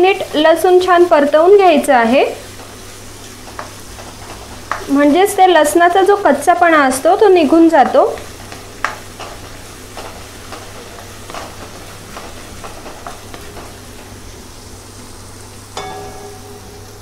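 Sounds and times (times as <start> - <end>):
paste sizzling in a pan: 0.0 - 17.0
short ringing knock: 15.8 - 17.0.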